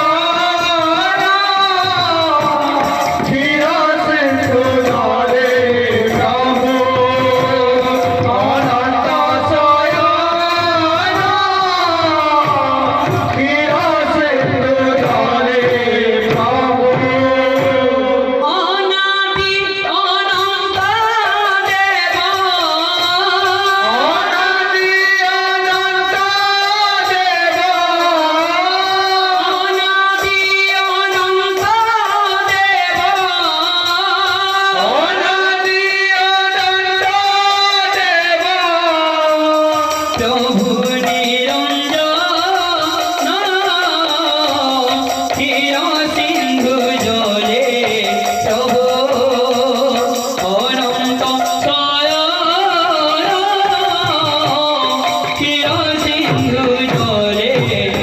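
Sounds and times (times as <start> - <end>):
barrel drums: 0.0 - 18.6, 36.7 - 58.0.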